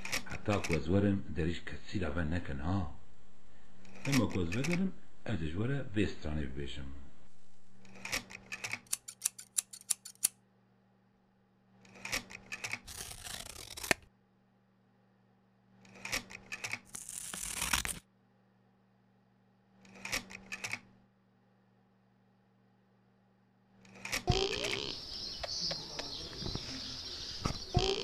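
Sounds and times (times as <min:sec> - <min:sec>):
scissors snipping: 0:08.1 - 0:10.3, 0:12.0 - 0:14.0, 0:16.0 - 0:18.0
paper rustling: 0:12.4 - 0:14.0, 0:16.2 - 0:18.0.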